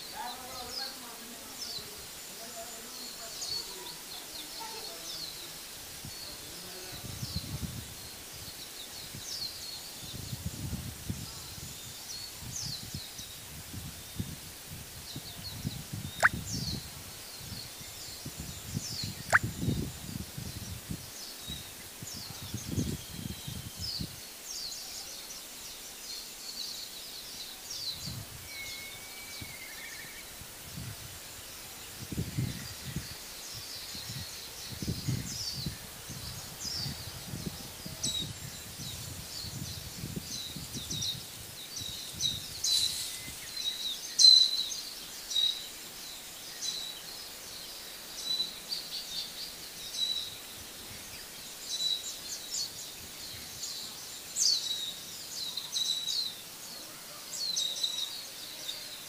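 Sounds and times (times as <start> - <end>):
small birds chirping: 0.0 - 59.0
lower whistled bird call: 27.7 - 30.3, 39.4 - 45.7.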